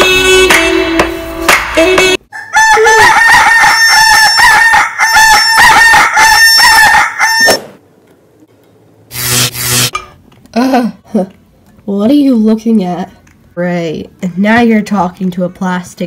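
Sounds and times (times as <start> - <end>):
chicken calls: 2.3 - 7.8.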